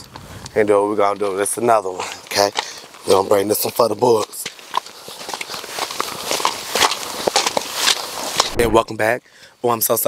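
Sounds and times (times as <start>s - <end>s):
footsteps crunching on gravel: 1.0s - 8.9s.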